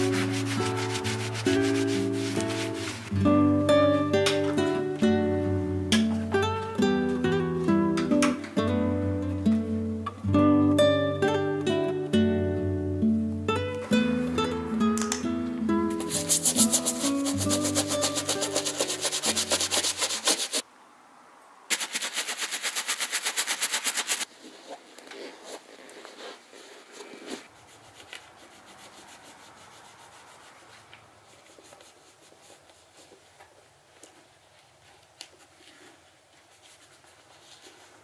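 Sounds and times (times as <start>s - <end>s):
brush scrubbing a boot: 0.0s - 3.1s, 16.0s - 20.6s, 21.7s - 33.6s, 35.4s - 38.0s
cloth rubbing on leather: 0.0s - 3.1s, 16.0s - 20.6s, 21.7s - 38.0s.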